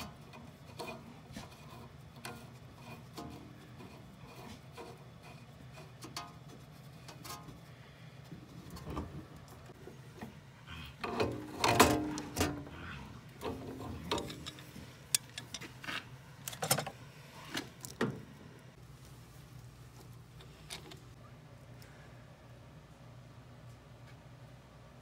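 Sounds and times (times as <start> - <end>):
pliers clicking and scraping metal: 13.4 - 17.0.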